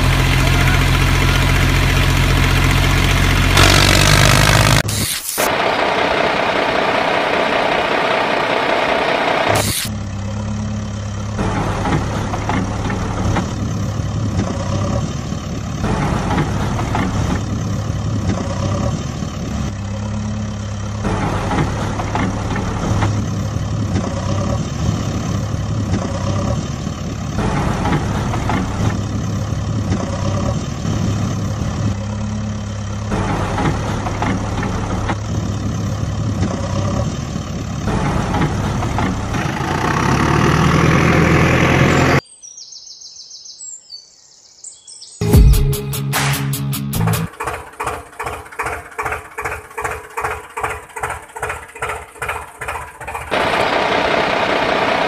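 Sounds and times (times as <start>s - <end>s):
heavy vehicle engine idling: 0.0s - 4.8s, 5.5s - 42.2s, 47.2s - 55.0s.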